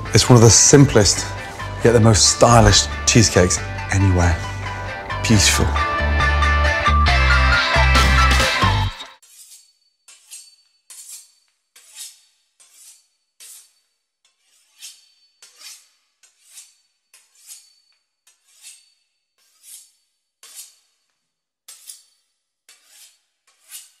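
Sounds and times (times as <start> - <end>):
knife sawing through crisp pastry: 9.2 - 21.1, 21.7 - 24.0.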